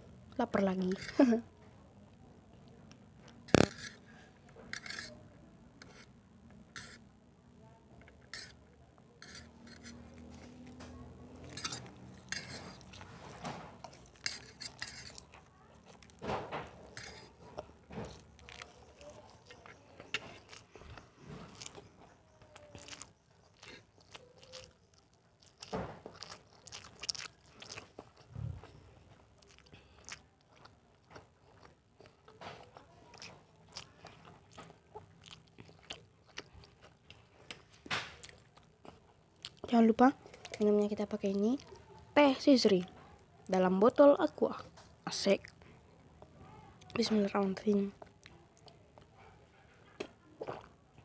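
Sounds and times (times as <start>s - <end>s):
chewing: 8.0s - 42.1s, 44.7s - 51.0s.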